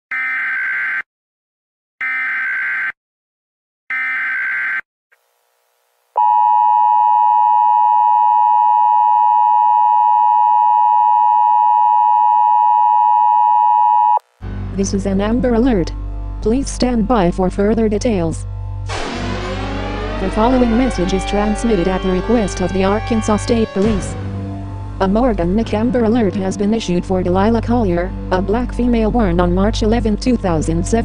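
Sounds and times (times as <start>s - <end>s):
loud warning alarm tone: 18.9s - 25.1s.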